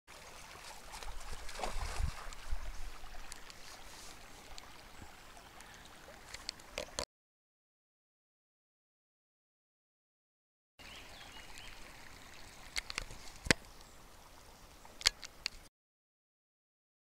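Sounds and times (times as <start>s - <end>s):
stream running over stones: 0.1s - 7.0s, 10.8s - 15.7s.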